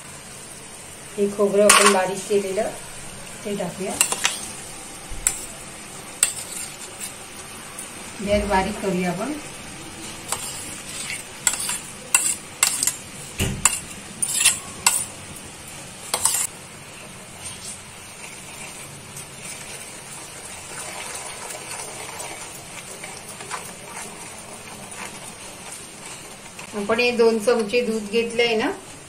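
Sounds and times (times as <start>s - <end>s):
syrup bubbling and sizzling: 0.0s - 29.0s
wooden spatula stirring: 6.2s - 7.2s, 10.3s - 13.0s, 20.7s - 26.7s.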